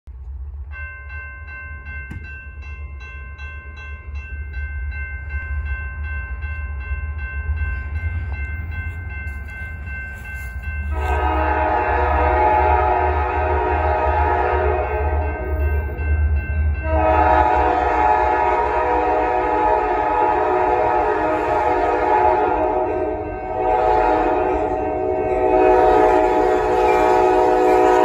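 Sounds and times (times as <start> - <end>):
locomotive engines rumbling: 3.6 - 28.0
locomotive horn: 10.8 - 15.4, 16.8 - 28.0.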